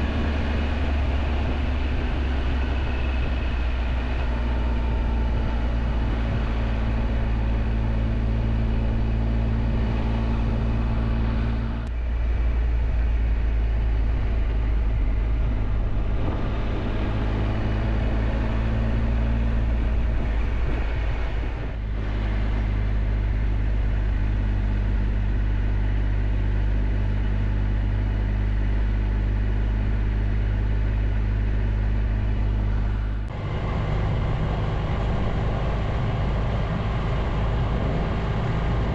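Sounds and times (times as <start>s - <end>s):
motorcycle engine cruising: 0.0s - 38.9s
road noise: 0.0s - 38.9s.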